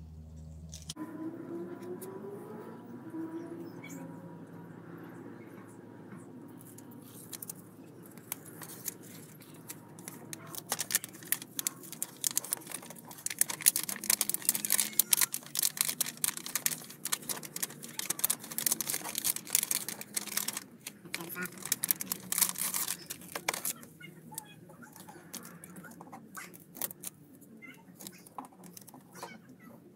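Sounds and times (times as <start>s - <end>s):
tape liner crackling as peeled: 7.0s - 23.8s, 26.5s - 27.1s.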